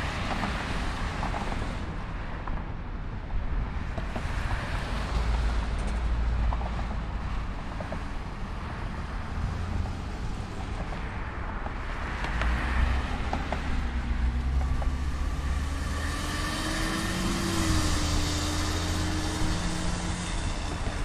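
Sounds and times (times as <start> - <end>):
jet engine whine: 13.2 - 21.0.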